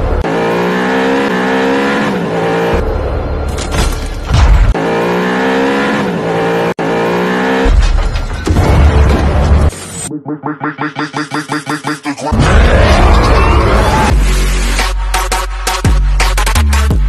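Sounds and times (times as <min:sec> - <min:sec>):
car engine revving: 0:00.0 - 0:03.4, 0:04.3 - 0:08.0.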